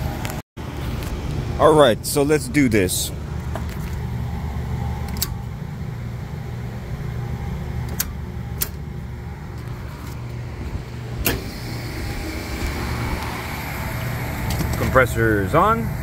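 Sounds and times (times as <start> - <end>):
refrigeration equipment humming: 0.0 - 16.0
compressor running: 2.9 - 16.0.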